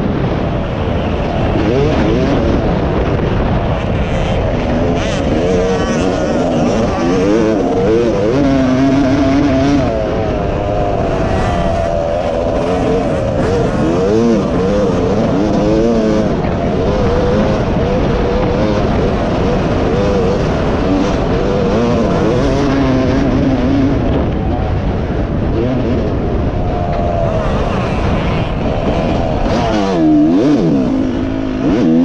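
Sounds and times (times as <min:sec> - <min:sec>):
dirt bike engine revving: 0:00.0 - 0:32.0
steady rushing noise: 0:00.0 - 0:32.0.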